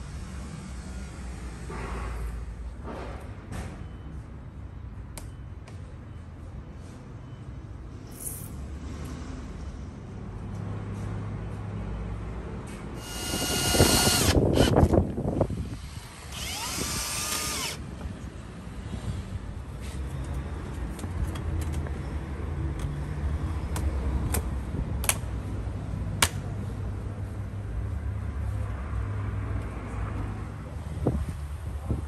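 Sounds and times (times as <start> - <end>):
drill whirring: 13.0 - 14.9, 16.3 - 17.8.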